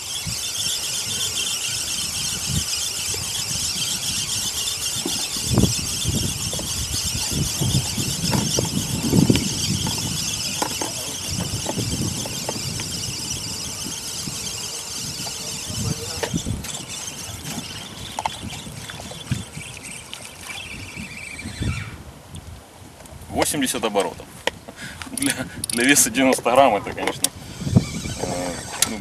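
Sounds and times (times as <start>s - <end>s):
fishing reel whirring: 0.0s - 21.9s, 27.2s - 29.0s
low handling thumps: 4.9s - 19.6s.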